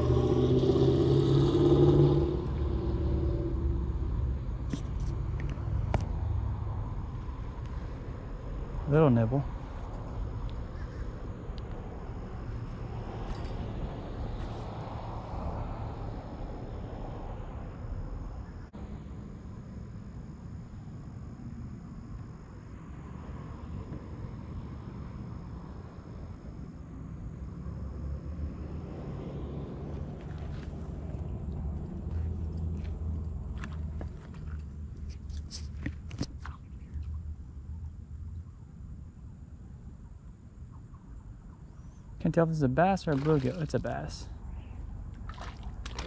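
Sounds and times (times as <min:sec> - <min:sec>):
vehicle driving past: 0:00.0 - 0:04.6, 0:11.8 - 0:19.0, 0:27.4 - 0:34.0
low outdoor rumble: 0:00.0 - 0:46.0.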